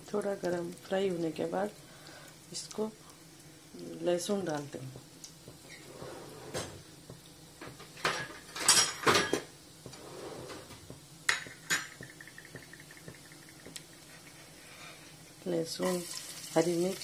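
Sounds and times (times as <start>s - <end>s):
seeds sizzling in oil: 0.0s - 5.9s, 10.9s - 17.0s.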